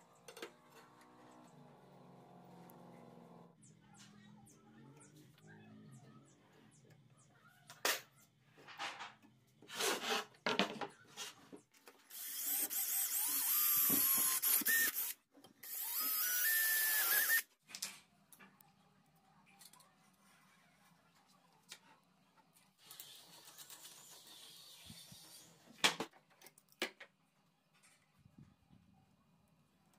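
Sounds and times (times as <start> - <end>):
cordless drill boring through metal: 12.1 - 17.4.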